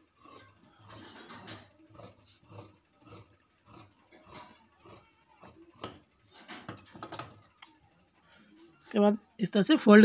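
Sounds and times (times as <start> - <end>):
cricket chirping: 0.0 - 10.0.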